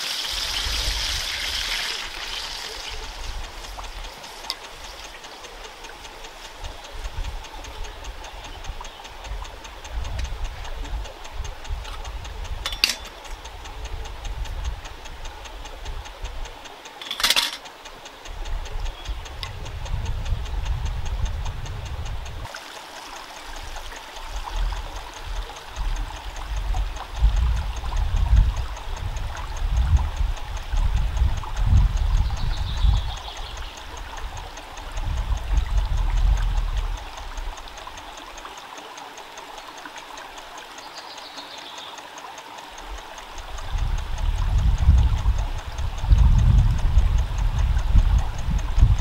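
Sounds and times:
wind buffeting microphone: 2.7 - 16.7, 18.3 - 22.5, 23.6 - 38.1, 42.8 - 49.0.

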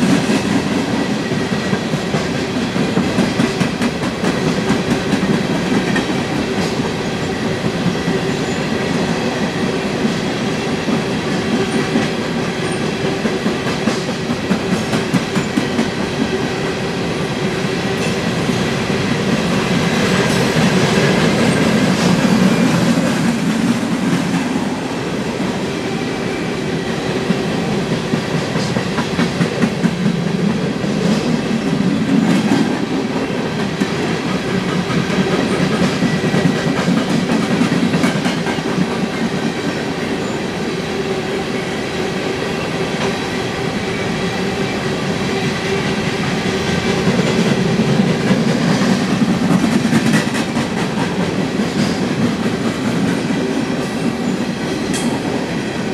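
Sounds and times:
train wheels rumbling on rail: 0.0 - 55.9.

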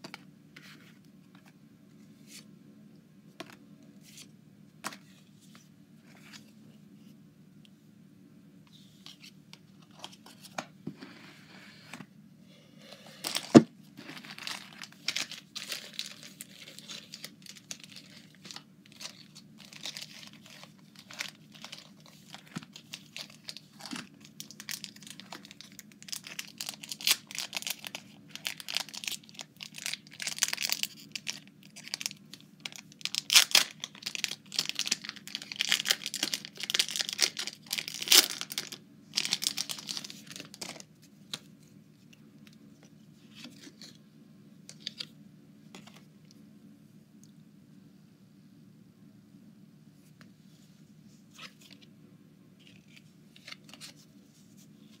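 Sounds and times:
cards rustling and clicking: 12.9 - 32.1, 32.7 - 44.0, 52.6 - 54.1
foil wrapper crinkling and tearing: 13.2 - 41.4.

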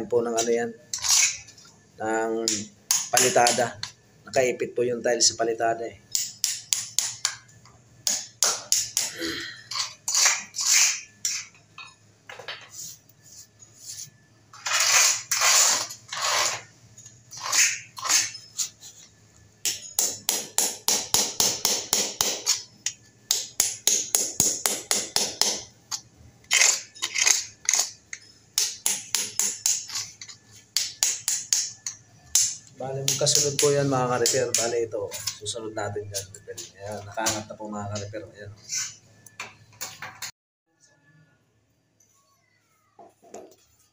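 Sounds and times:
hammer striking steel chisel: 19.6 - 26.0, 26.6 - 34.7.

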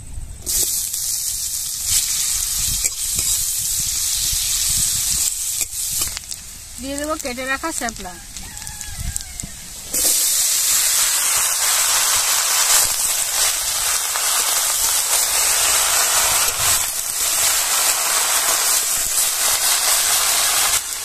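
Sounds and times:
stems sizzling in hot oil: 0.4 - 21.0
spatula stirring in wok: 9.9 - 21.0.

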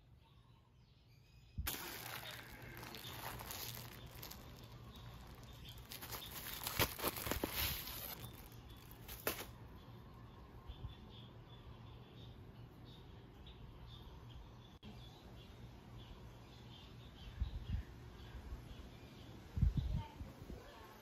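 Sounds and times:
plastic packaging crinkling: 1.7 - 9.6.

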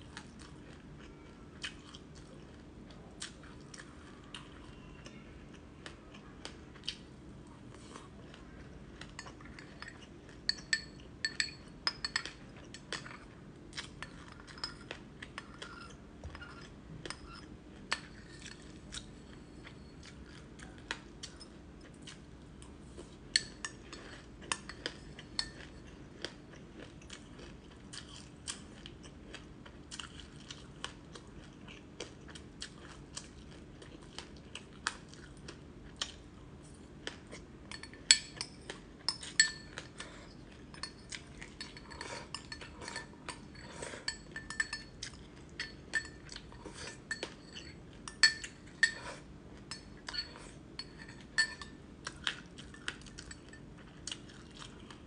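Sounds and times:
crunching and chewing: 0.0 - 11.2, 12.2 - 55.0
metal spoon clinking on glass bowl: 9.2 - 13.1, 14.1 - 15.0, 37.7 - 39.9, 40.7 - 49.0, 49.7 - 51.8.

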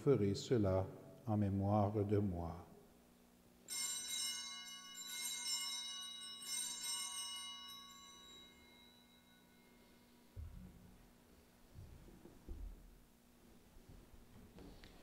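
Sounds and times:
altar bells ringing: 3.6 - 10.4.

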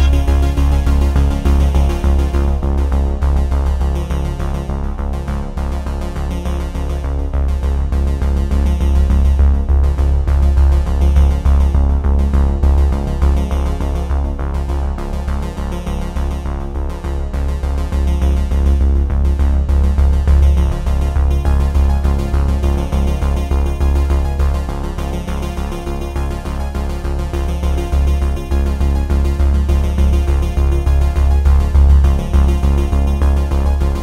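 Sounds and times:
instrumental music with pulsing bass: 0.0 - 34.0.

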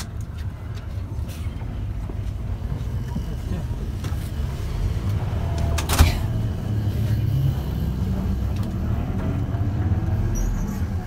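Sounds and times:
bus engine and road rumble: 0.0 - 11.0.

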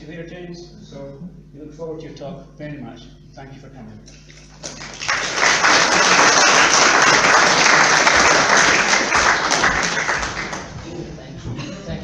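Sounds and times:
audience applauding: 4.5 - 10.9.

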